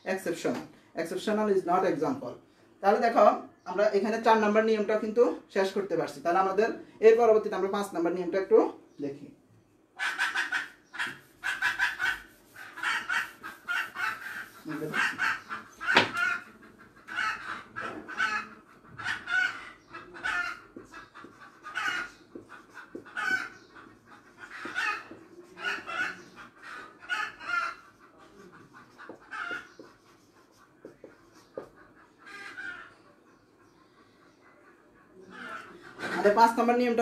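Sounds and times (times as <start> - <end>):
chickens clucking: 10.0 - 37.0
sharp knock: 15.9 - 16.2.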